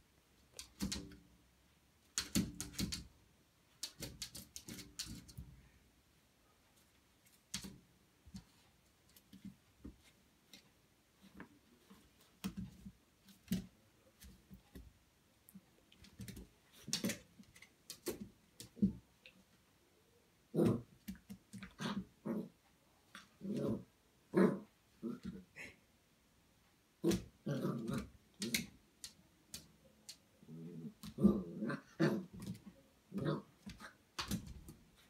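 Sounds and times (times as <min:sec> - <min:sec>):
puppy paws tapping on glass door: 0:02.1 - 0:03.1.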